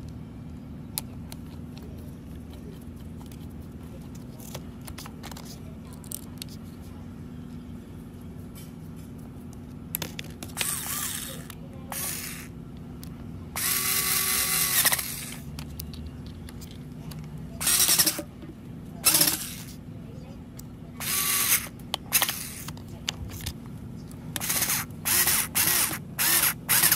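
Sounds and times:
cordless drill running: 0:10.6 - 0:12.5, 0:13.6 - 0:15.4, 0:17.6 - 0:18.2, 0:19.0 - 0:19.7, 0:21.0 - 0:22.7, 0:24.4 - 0:26.9.

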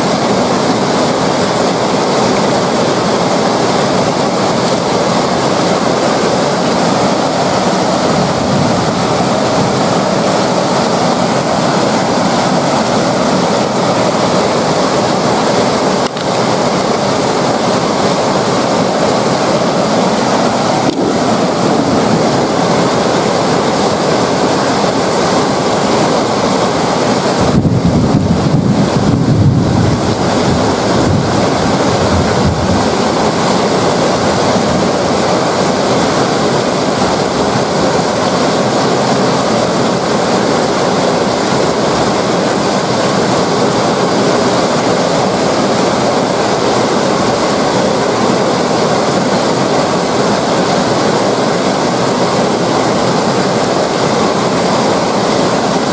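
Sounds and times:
heavy rain on paving: 0:00.0 - 0:55.9
wind rumble on microphone: 0:08.0 - 0:09.9, 0:27.3 - 0:35.3.

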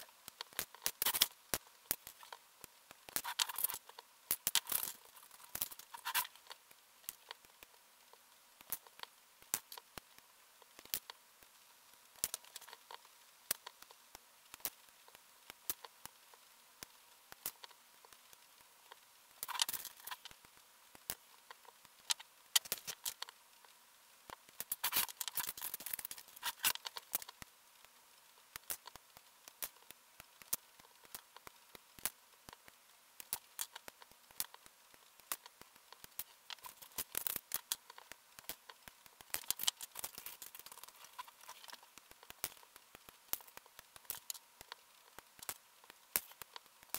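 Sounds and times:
plastic pieces clicking: 0:00.3 - 0:02.3, 0:19.4 - 0:20.4, 0:22.1 - 0:23.3, 0:24.6 - 0:27.4, 0:29.6 - 0:46.9.

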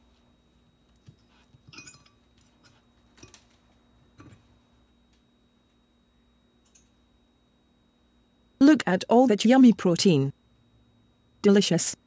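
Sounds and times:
fork clinking on ceramic plate: 0:01.7 - 0:02.2.

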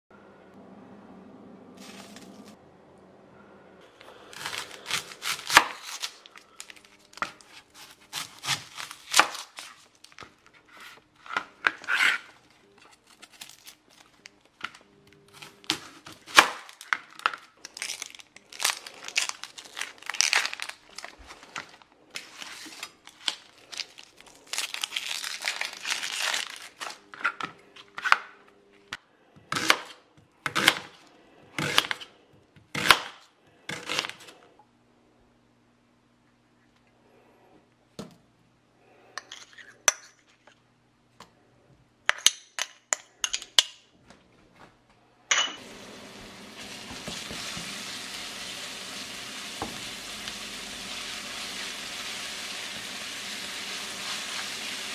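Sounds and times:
knife cutting onion on board: 0:04.2 - 0:06.1, 0:07.2 - 0:09.7, 0:29.4 - 0:30.9, 0:31.6 - 0:34.4
onion skin crackling and tearing: 0:04.3 - 0:10.4, 0:12.9 - 0:14.5, 0:15.4 - 0:27.0.

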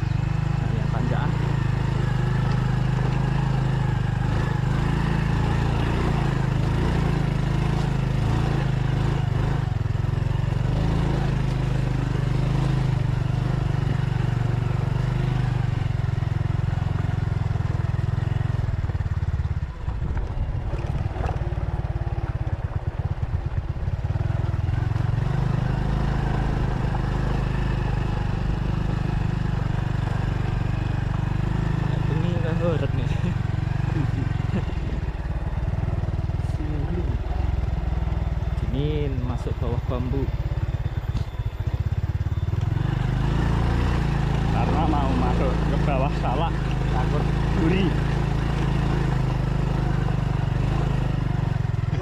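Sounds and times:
motorcycle engine under load: 0:00.0 - 0:52.0.

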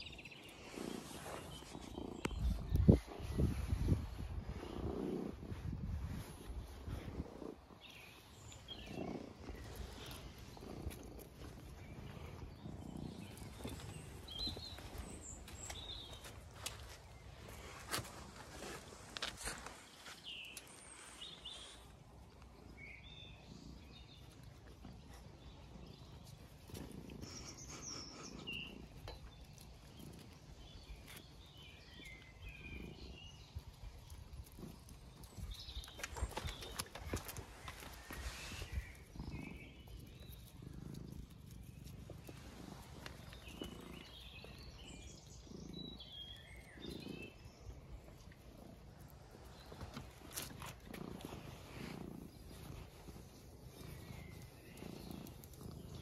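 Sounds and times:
animals scuffling on stone: 0:00.0 - 0:56.0
dogs growling: 0:06.6 - 0:16.3, 0:22.6 - 0:56.0.

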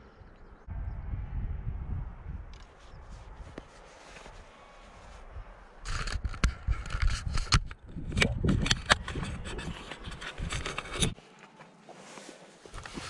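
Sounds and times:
low rumble: 0:00.0 - 0:02.6
clothing and gear rubbing: 0:02.7 - 0:05.3, 0:09.4 - 0:13.0.

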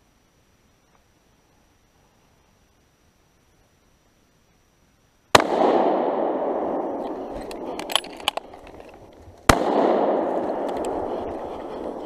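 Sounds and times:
rifle shots with echo: 0:05.3 - 0:12.0
sharp clicks: 0:07.0 - 0:09.6, 0:10.4 - 0:12.0.

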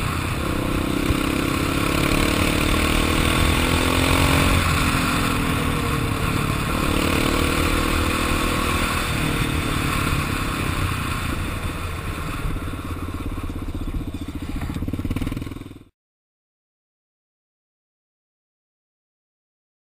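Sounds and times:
quad engine running: 0:00.0 - 0:15.9.

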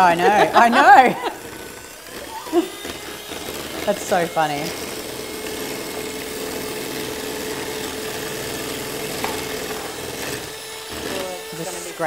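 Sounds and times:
electric hand mixer running: 0:00.0 - 0:12.0.

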